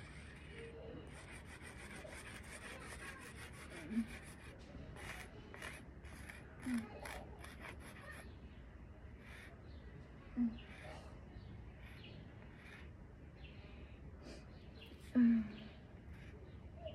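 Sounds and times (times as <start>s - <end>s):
chalk scraping over pavement: 0.0s - 8.4s.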